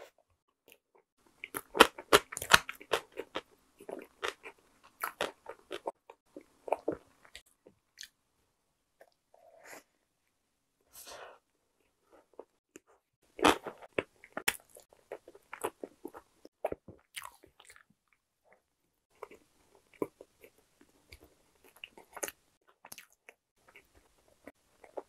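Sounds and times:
chewing bread close up: 0.7s - 8.2s, 12.2s - 25.0s.

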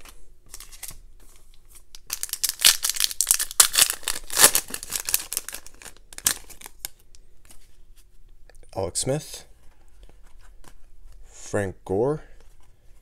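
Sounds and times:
foil wrapper crinkling and tearing: 1.9s - 7.0s.

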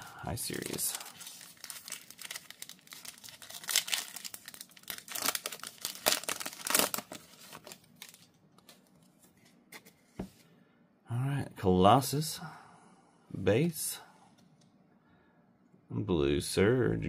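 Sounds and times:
foil wrapper tearing and crinkling: 0.4s - 8.3s.

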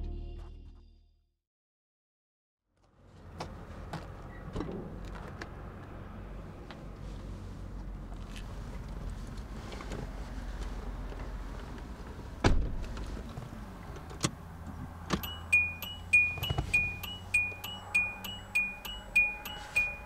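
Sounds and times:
car door shutting: 12.4s - 13.2s, 14.1s - 20.0s
dashboard warning chime beeping: 15.2s - 20.0s.

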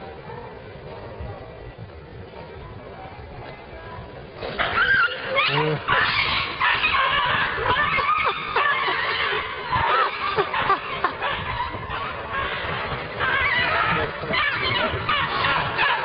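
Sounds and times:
cat and dog squealing and yowling: 4.6s - 16.0s.

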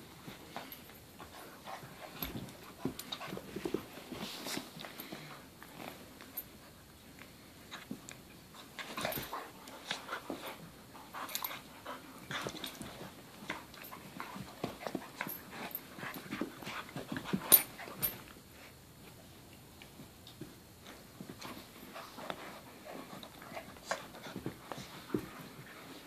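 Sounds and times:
dogs play-fighting and scuffling: 0.0s - 26.0s
dog panting: 8.8s - 18.8s.

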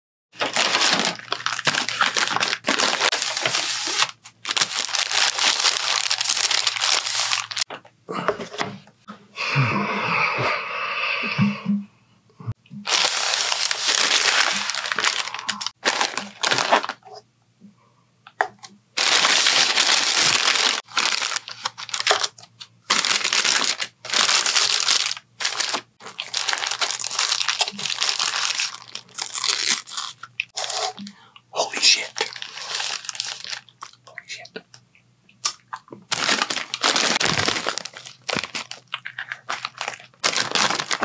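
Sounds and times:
paper wrapper crinkling: 0.4s - 7.8s, 12.8s - 17.2s, 19.0s - 31.0s, 31.6s - 34.2s, 36.1s - 41.0s.

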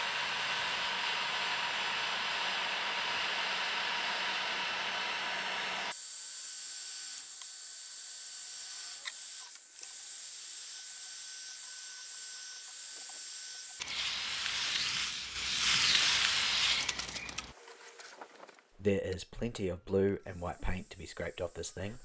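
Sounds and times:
heat gun blowing hot air: 13.6s - 17.4s.

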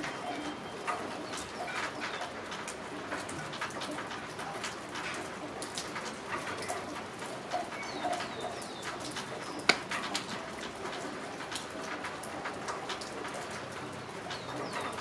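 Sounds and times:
rain falling on trees: 0.0s - 15.0s
drips tapping: 5.0s - 15.0s.

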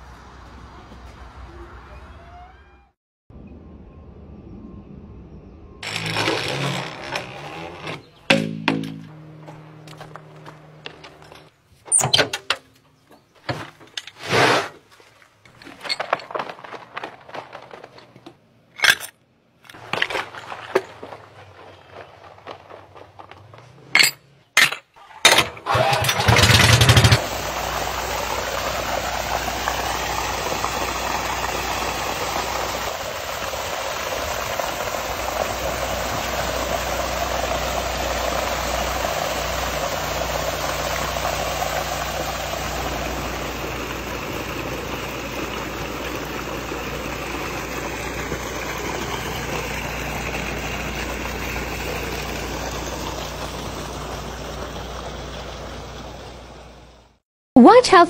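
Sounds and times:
water pump engine running: 5.8s - 11.5s, 25.3s - 57.2s
water rushing from hose: 25.7s - 57.0s.

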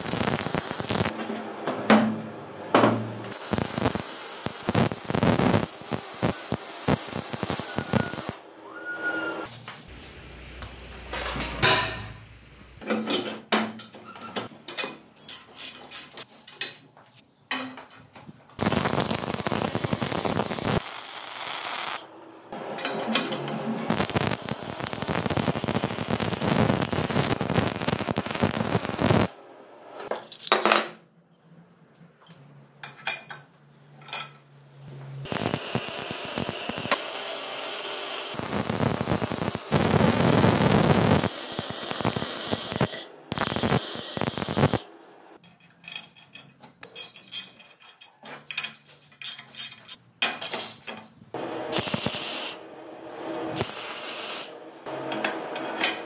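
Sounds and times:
welder arc crackling: 0.0s - 1.2s, 3.3s - 8.4s, 18.6s - 22.1s, 23.9s - 29.4s, 35.2s - 44.9s, 51.7s - 52.6s, 53.6s - 54.6s.

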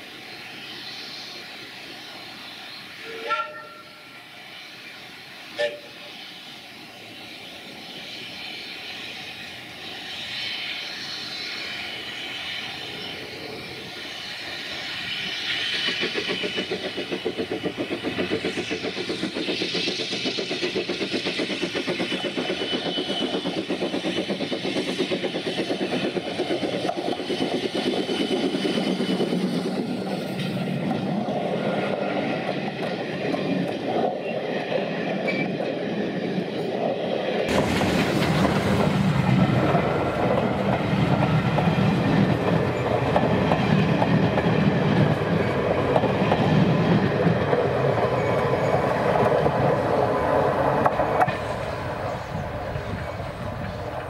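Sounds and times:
steam locomotive working: 0.0s - 54.0s
carriage wheels clickety-clack: 15.5s - 31.2s.

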